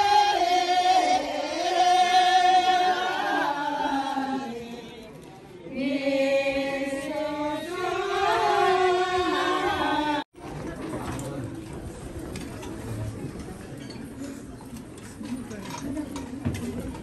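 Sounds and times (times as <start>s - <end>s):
voices singing a slow chant: 0.0s - 10.3s.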